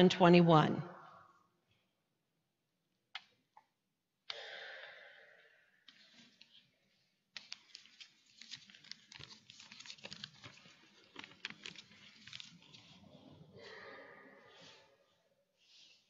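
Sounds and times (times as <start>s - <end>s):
paper crinkling and rustling: 7.3s - 13.6s.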